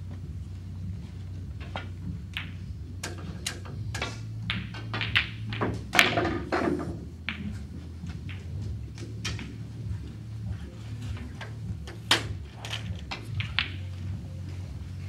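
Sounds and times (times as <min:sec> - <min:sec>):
snooker balls clicking and knocking: 0:00.0 - 0:15.0
cue tip striking ball: 0:01.6 - 0:09.8, 0:11.2 - 0:14.2.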